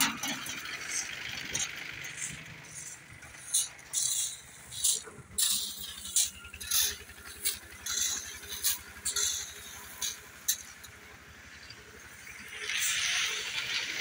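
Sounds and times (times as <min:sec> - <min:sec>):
low engine rumble: 0:00.0 - 0:14.0
shovels scraping crushed stone: 0:02.2 - 0:10.7.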